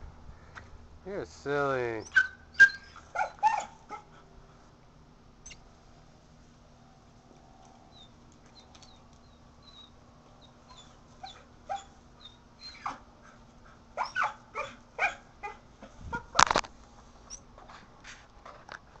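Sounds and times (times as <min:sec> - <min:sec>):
dog whimpering and yipping: 0:02.0 - 0:04.2, 0:07.9 - 0:13.4, 0:14.0 - 0:16.3.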